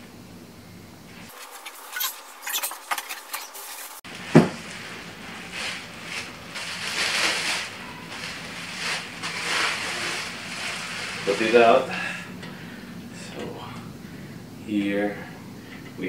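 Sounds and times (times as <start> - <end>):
cardboard rustling: 1.3 - 11.8
plastic wrap crinkling: 1.3 - 11.8
loud knock: 4.3 - 4.6.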